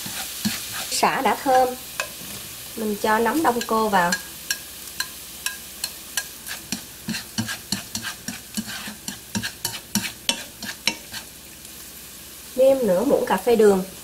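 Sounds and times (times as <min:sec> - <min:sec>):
spatula tapping and scraping pan: 0:00.0 - 0:02.5, 0:03.4 - 0:11.3
mushrooms sizzling in oil: 0:00.0 - 0:14.0.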